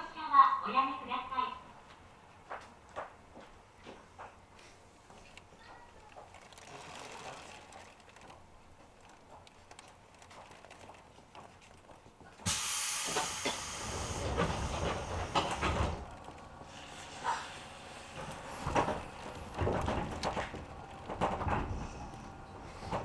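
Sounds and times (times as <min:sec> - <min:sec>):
compressed air hiss: 0:12.5 - 0:16.0.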